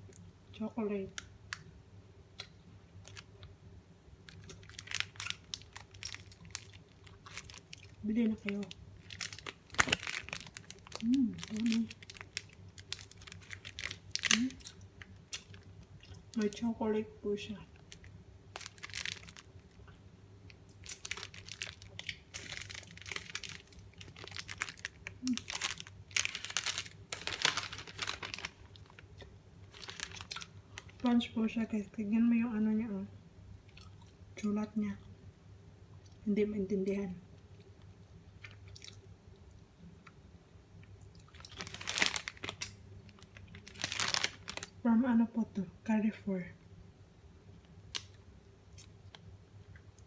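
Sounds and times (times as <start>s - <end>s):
plastic wrapper crinkling: 3.0s - 3.5s, 4.2s - 16.7s, 17.7s - 19.9s, 20.5s - 31.3s, 41.3s - 44.8s.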